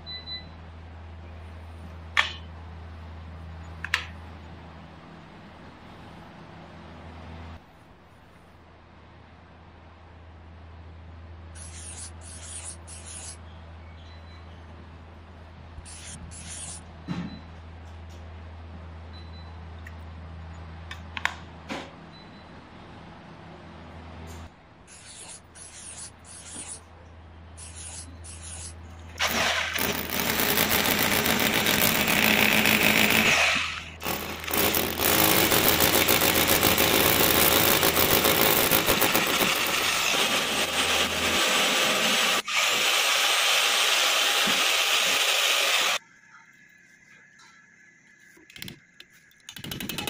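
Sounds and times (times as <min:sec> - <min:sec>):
hammer drill boring into wall: 0:29.2 - 0:46.0.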